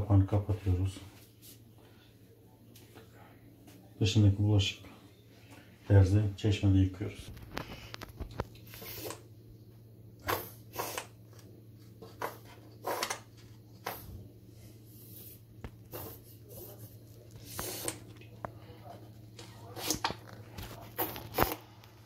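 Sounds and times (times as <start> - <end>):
low steady hum: 0.0 - 22.0
grout bottle squirts and squelches: 19.4 - 21.7.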